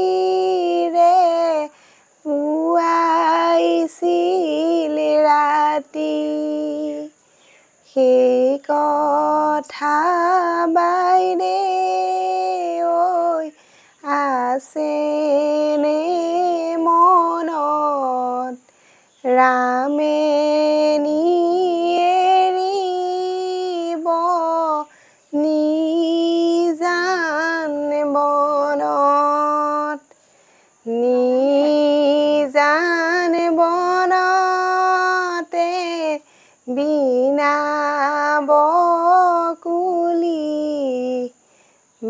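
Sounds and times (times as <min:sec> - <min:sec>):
woman singing unaccompanied: 0:00.0 - 0:42.0.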